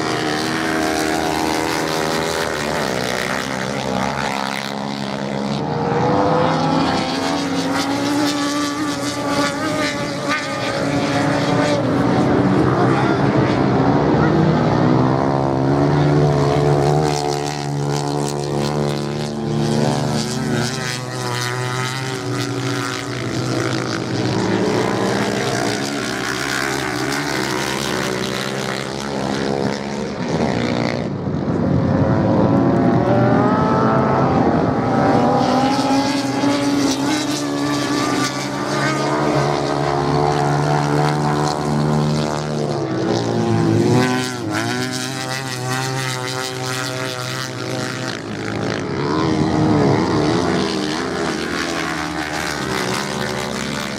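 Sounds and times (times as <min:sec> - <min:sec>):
motorcycle engines revving: 0:00.0 - 0:53.9.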